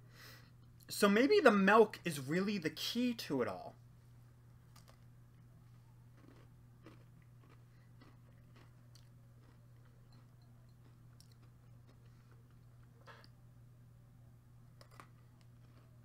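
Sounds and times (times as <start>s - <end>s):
low steady hum: 0.0s - 16.0s
faint chewing of cookie: 4.6s - 13.4s, 14.7s - 16.0s.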